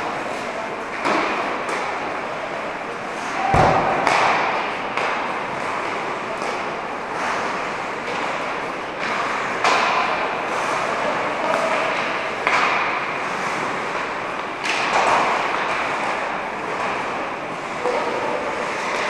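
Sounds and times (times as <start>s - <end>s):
skates scraping on ice: 3.1s - 19.0s
thuds in echoing hall: 3.4s - 5.3s.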